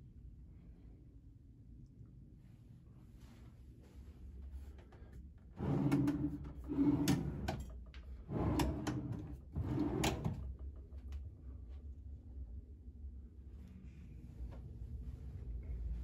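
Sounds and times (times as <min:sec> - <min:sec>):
drawers sliding open and shut: 0:05.6 - 0:10.5
drawers knocking against stops: 0:08.3 - 0:10.5.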